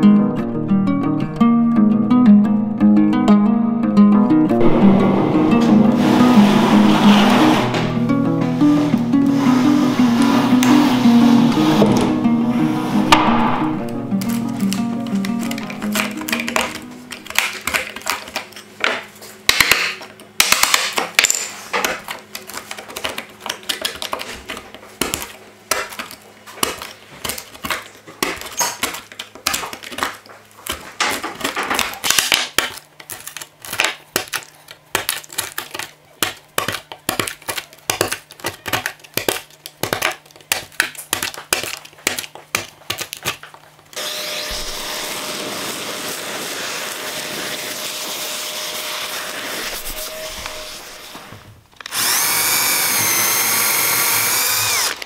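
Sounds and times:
dust extractor hissing: 5.2 - 13.4, 44.0 - 55.0
screwdriver scraping wood: 5.9 - 13.4, 49.4 - 51.2, 51.8 - 55.0.

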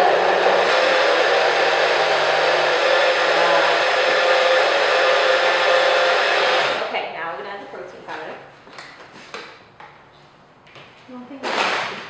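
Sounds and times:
blender motor running: 0.0 - 6.9.

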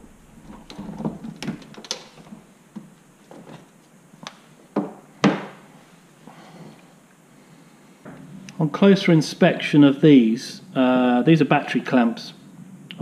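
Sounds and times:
heavy knocks in plastic locker: 4.8 - 5.6.

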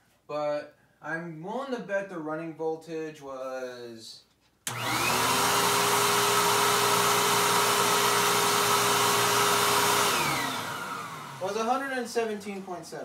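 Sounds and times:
vacuum cleaner motor whine: 4.7 - 11.8.

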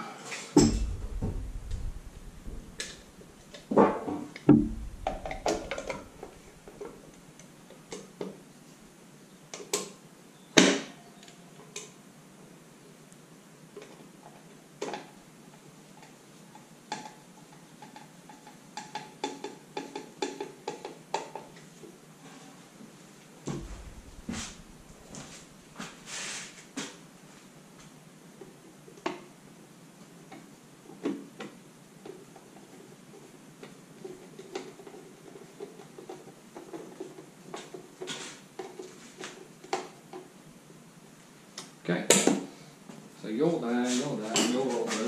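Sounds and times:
tool clicks taps and knocks: 4.4 - 7.0.

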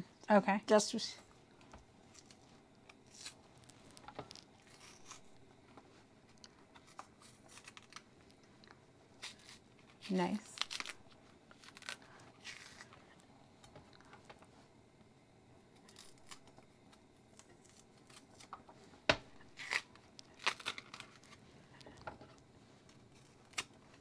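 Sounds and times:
knife scraping plantain peel: 4.3 - 5.3, 6.9 - 8.0, 9.2 - 12.9, 15.9 - 16.5, 19.4 - 21.4.

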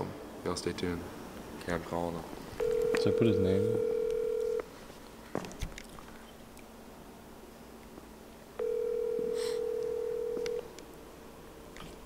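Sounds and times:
phone ringback tone: 2.6 - 4.6, 8.6 - 10.7.

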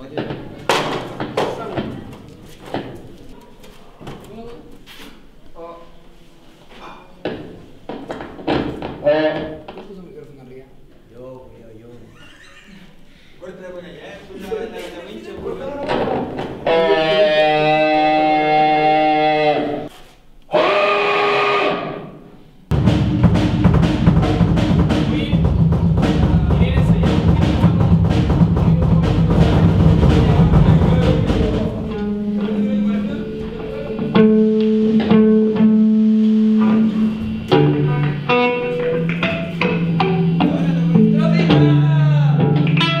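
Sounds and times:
distorted guitars: 15.8 - 19.9, 22.7 - 43.0
bass notes: 22.7 - 43.0
drums: 22.7 - 43.0
ringing electric guitar chord: 31.9 - 41.8.

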